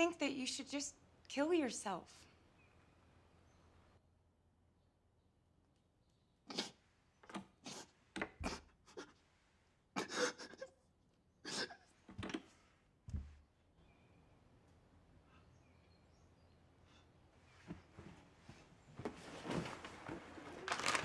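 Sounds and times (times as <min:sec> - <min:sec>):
man sobbing and sniffing: 0:07.6 - 0:12.0.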